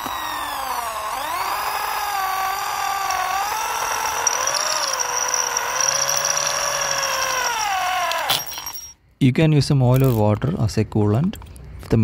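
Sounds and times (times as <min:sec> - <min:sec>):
electric drill whining: 0:00.0 - 0:08.9.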